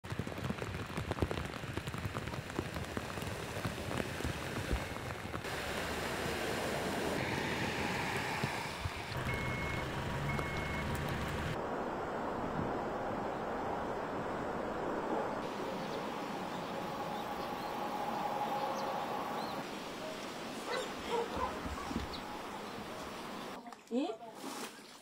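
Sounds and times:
heavy rain on road: 0.0 - 11.6
flowing floodwater: 0.1 - 23.6
vehicle splashing through floodwater: 5.4 - 11.6.

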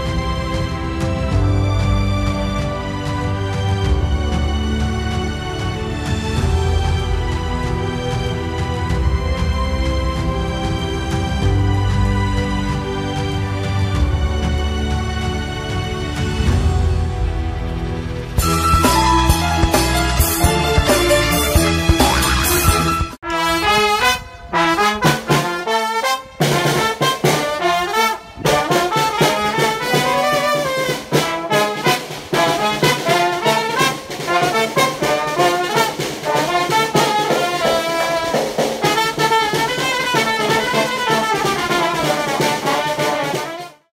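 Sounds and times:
brass music with steady beat: 18.4 - 43.9.

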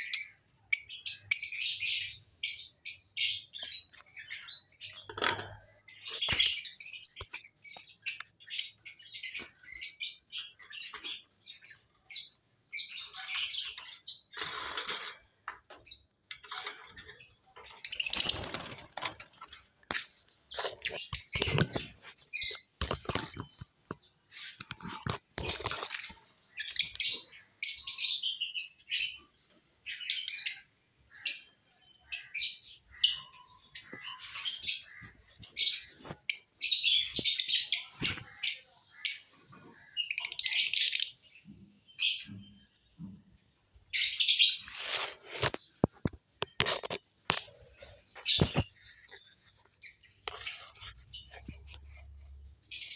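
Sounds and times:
lovebirds chirping: 0.0 - 52.9.

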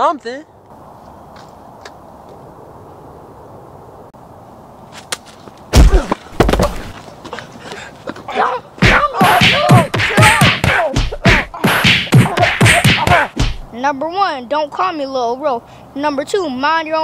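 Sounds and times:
heavy thumping blows: 5.7 - 7.0, 8.8 - 13.7
rapid whacks: 5.8 - 6.9, 8.8 - 13.7
loud yelling cries: 8.3 - 11.6, 12.2 - 13.4.

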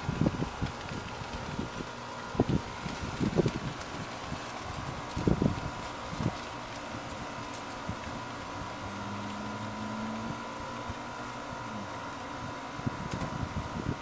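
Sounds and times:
distant motor hum: 0.0 - 14.0
wind thumps on microphone: 4.7 - 6.4, 12.8 - 14.0.

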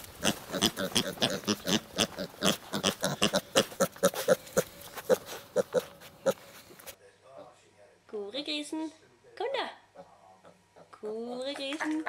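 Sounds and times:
pig grunting: 0.2 - 6.7.

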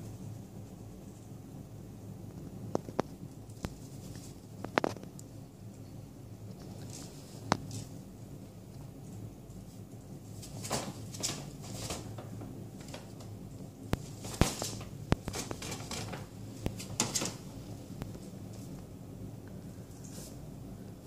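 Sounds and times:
paper bag rustling and crinkling: 14.1 - 17.4.

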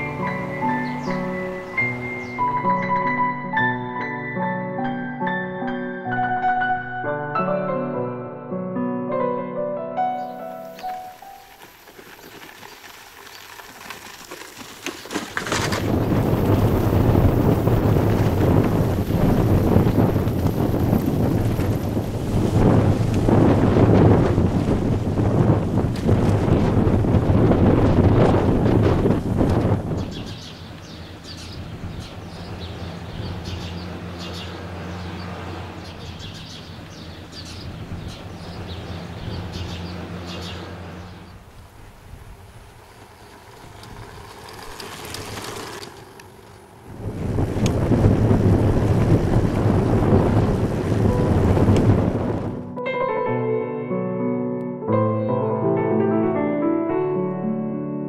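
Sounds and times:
small birds chirping: 0.0 - 2.6, 10.1 - 15.2, 29.9 - 41.5
wind buffeting microphone: 11.4 - 52.8.

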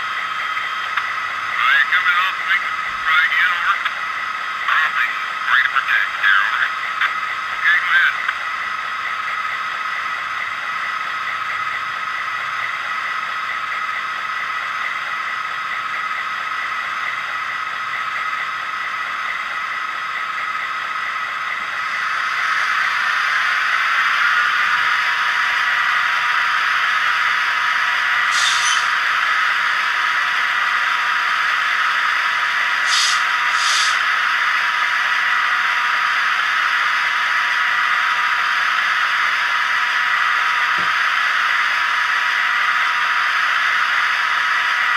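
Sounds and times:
model locomotive engine sound: 0.0 - 44.9
short squeaky sounds: 28.3 - 29.0.

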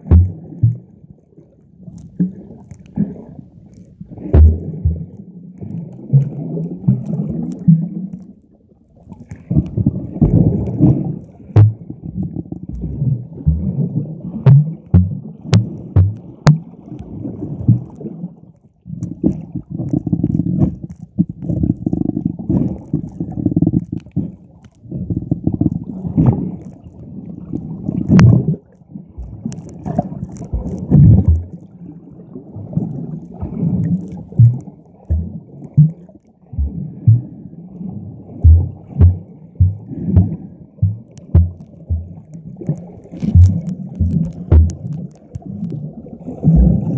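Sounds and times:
low thuds: 0.0 - 0.8, 4.2 - 5.2, 11.5 - 16.7, 30.5 - 31.6, 34.2 - 37.4, 38.4 - 42.4, 43.2 - 45.5
underwater rumble and sloshing: 0.0 - 46.9.

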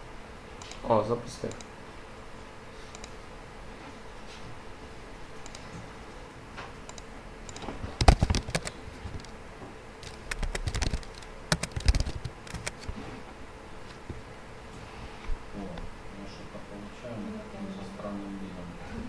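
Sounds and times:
typing on a keyboard: 6.9 - 9.3, 10.0 - 12.9.

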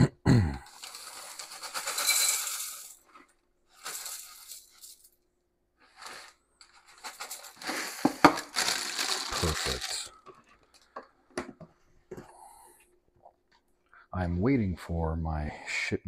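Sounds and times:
kitchen rattles and clinks: 0.7 - 3.1, 6.0 - 10.1.

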